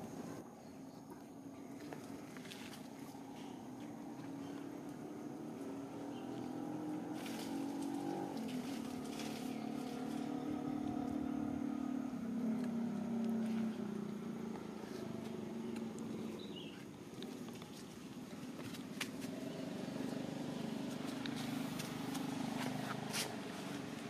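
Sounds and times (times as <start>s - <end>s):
motor engine running: 5.6s - 17.3s.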